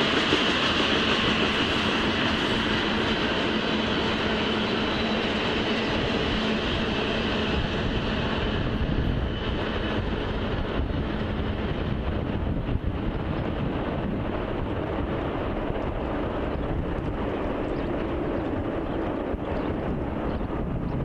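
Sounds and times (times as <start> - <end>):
train wheels on rail: 0.0 - 21.0.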